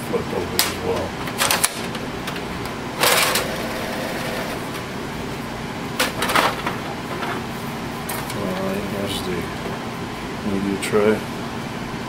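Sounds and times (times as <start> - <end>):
steady low hum: 0.0 - 12.0
printer tray scraping rattle: 0.8 - 4.8, 6.0 - 8.9.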